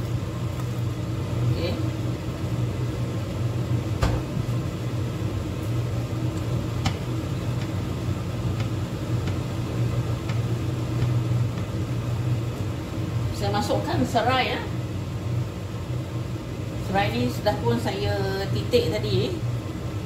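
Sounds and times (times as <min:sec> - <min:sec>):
low mechanical hum: 0:00.0 - 0:20.0
wooden spoon stirring in metal pot: 0:05.9 - 0:12.9.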